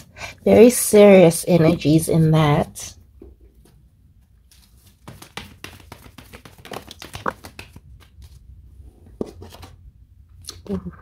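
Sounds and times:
cards being shuffled: 4.5s - 8.4s.

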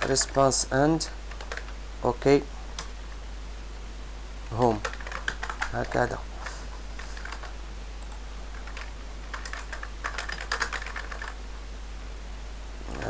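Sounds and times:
low steady hum: 0.0s - 13.0s
typing on computer keyboard: 1.3s - 1.8s, 4.6s - 5.8s, 7.0s - 11.4s.

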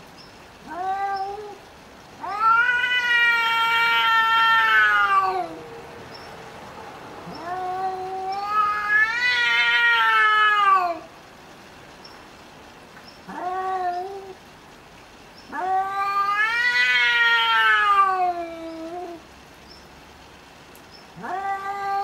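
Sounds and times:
cats yowling: 0.6s - 1.6s, 2.2s - 5.7s, 7.2s - 11.1s, 13.3s - 14.4s, 15.5s - 19.2s, 21.2s - 22.0s.

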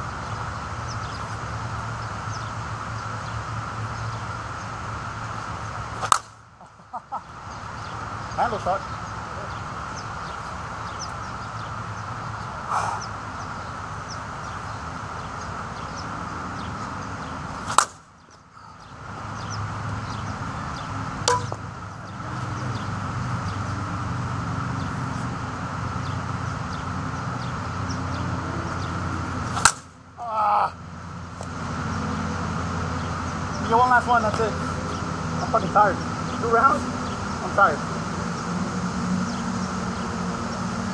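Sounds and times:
low outdoor hum: 0.0s - 40.9s
bat cracking against ball: 5.9s - 6.4s, 17.6s - 18.1s, 21.2s - 21.7s, 29.4s - 30.0s.

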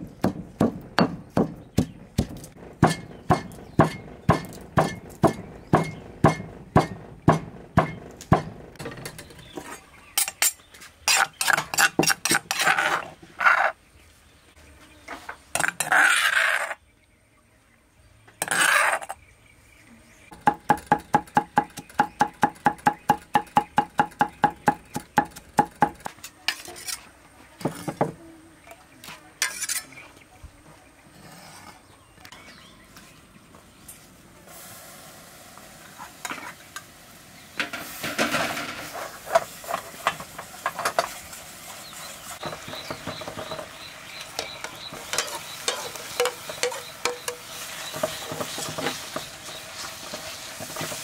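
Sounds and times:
cleaver chopping on wooden block: 0.2s - 8.5s
stone pestle pounding in mortar: 0.2s - 8.6s
blade scraping across block: 9.6s - 13.8s, 15.6s - 16.8s, 18.4s - 19.2s, 26.2s - 28.0s, 29.4s - 30.0s.

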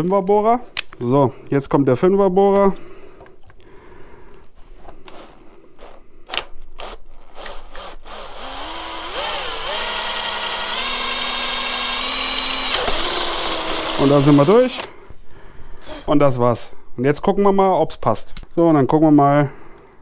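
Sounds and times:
power drill whining: 5.1s - 6.0s, 6.8s - 15.0s.

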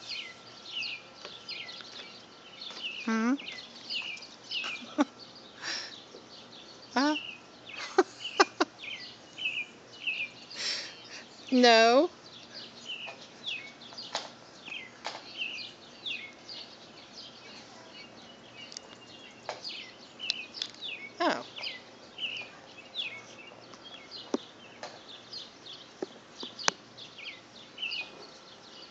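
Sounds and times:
birds chirping: 0.0s - 28.9s.

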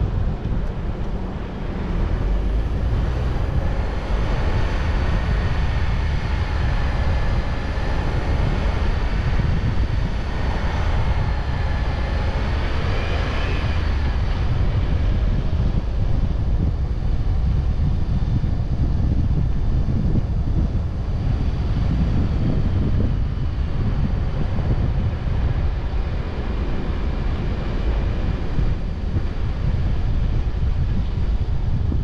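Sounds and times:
car road noise: 0.0s - 32.0s
wind buffeting microphone: 0.0s - 32.0s.

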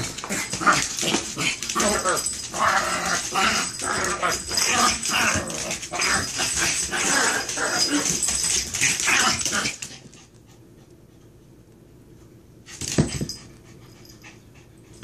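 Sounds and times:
dogs scuffling: 0.0s - 10.2s.

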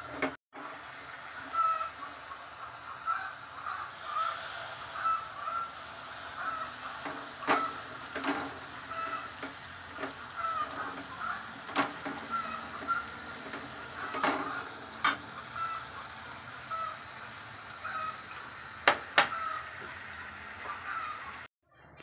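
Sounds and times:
metal spatula scraping steel pan: 4.0s - 15.4s.

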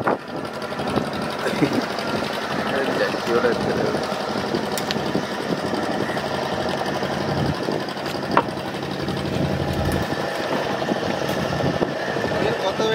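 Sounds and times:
boat engine running: 0.0s - 12.9s.

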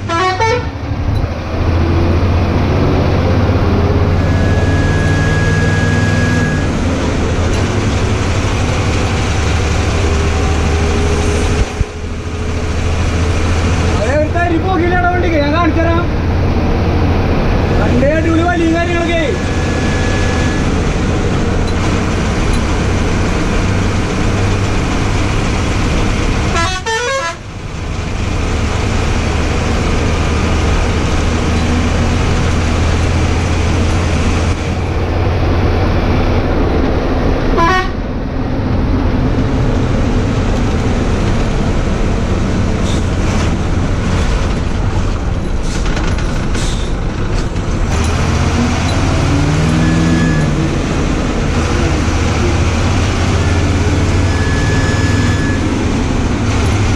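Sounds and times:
horn tooting: 0.0s - 0.8s, 26.5s - 27.5s, 37.6s - 38.0s
bus diesel engine running: 0.0s - 56.9s.

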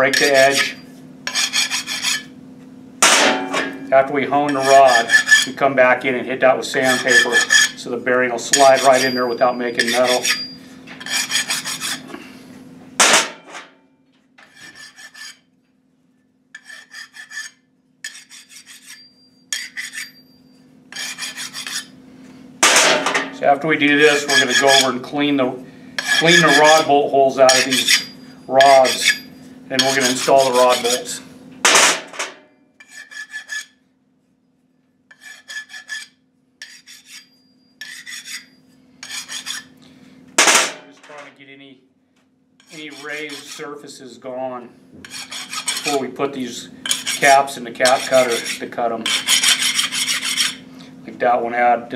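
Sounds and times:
file rasping on steel: 0.1s - 2.3s, 4.5s - 5.6s, 6.8s - 7.8s, 8.4s - 12.1s, 14.4s - 15.5s, 16.6s - 20.2s, 20.9s - 22.0s, 24.0s - 25.0s, 26.0s - 26.9s, 27.5s - 31.2s, 32.8s - 33.8s, 35.1s - 39.8s, 42.6s - 43.7s, 45.0s - 46.0s, 46.8s - 50.7s
sharp metal hit: 3.0s - 4.0s, 13.0s - 13.7s, 22.6s - 23.5s, 31.6s - 32.5s, 40.4s - 41.2s.

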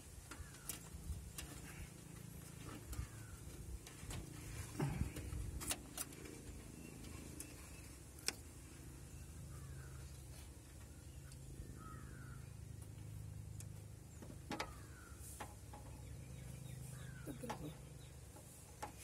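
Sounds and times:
low steady background hum: 0.0s - 19.0s.

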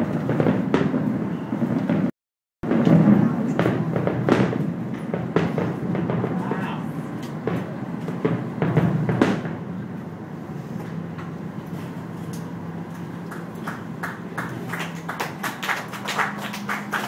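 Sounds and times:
boat engine humming: 6.0s - 17.0s
light applause: 13.2s - 17.0s.

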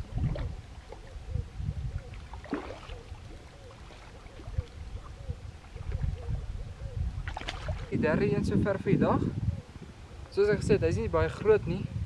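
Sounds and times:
fish splashing at water surface: 2.2s - 4.7s, 7.2s - 7.9s.

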